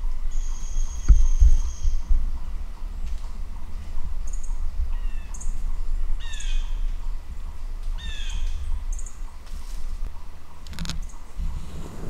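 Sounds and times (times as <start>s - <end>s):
low rumble: 11.3s - 12.0s.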